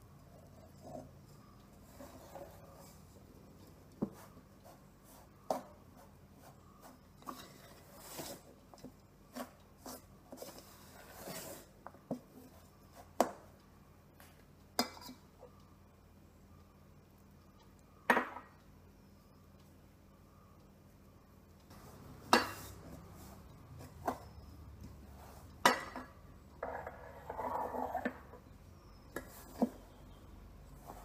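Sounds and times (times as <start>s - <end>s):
spoon scraping bowl: 26.6s - 29.9s.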